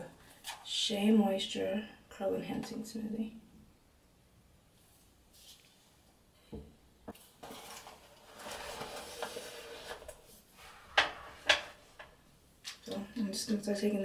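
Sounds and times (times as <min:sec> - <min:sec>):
rubbing and rustling: 0:04.8 - 0:06.0, 0:07.2 - 0:12.0.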